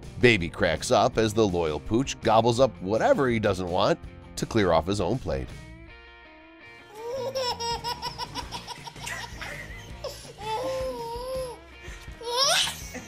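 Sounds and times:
baby laughing: 6.9s - 13.0s.

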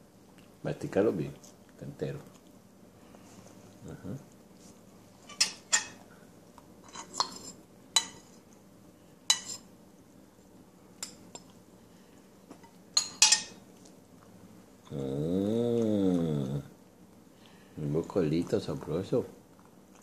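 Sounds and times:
metal spoon clinking on ceramic bowl: 13.0s - 13.6s.

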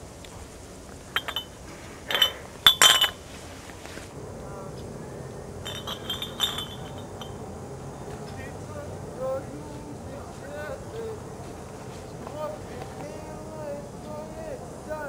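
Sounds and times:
glass bottles clinking: 1.1s - 3.3s, 5.6s - 7.5s.

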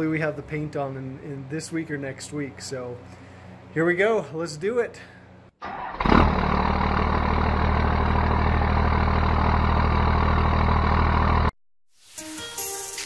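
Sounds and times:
diesel truck engine idling: 5.7s - 11.5s.

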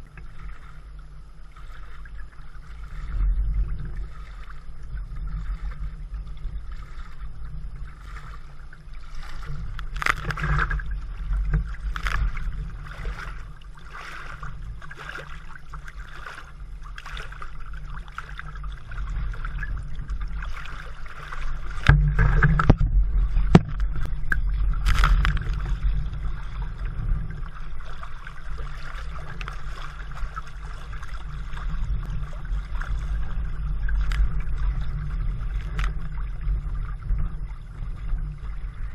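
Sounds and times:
steady low rumble: 0.0s - 38.9s
water lapping against kayak: 0.0s - 38.9s
sharp water splashes: 9.0s - 19.7s, 20.3s - 26.6s.

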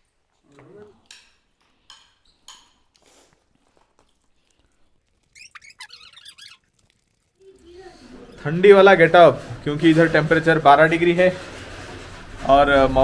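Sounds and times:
scrapes of eating from plates: 0.9s - 13.0s
high squeaky chirps: 5.1s - 7.8s.

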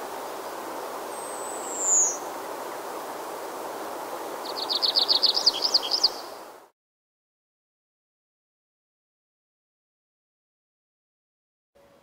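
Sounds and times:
outdoor background hiss: 0.0s - 6.7s, 11.8s - 12.0s
birdsong: 1.1s - 2.3s, 4.4s - 6.4s.

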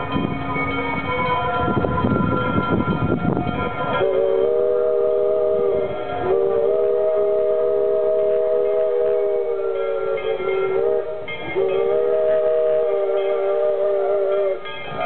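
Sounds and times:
steam locomotive rumbling: 0.0s - 15.0s
steam whistle blowing: 3.7s - 15.0s.

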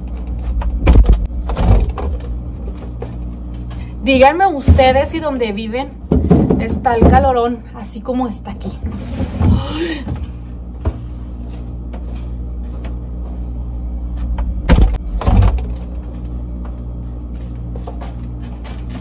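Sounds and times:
refrigerator hum: 0.0s - 19.0s
groceries knocking in refrigerator: 4.1s - 7.5s
heavy bumps: 4.1s - 7.5s.

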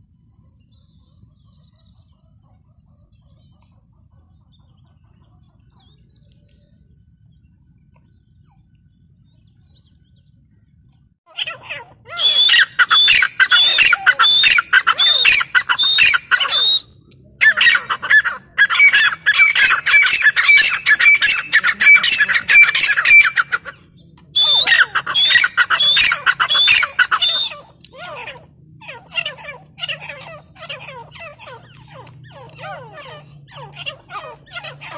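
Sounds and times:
francolin harsh repeated calls: 11.3s - 16.8s, 17.4s - 23.8s, 24.4s - 34.9s.

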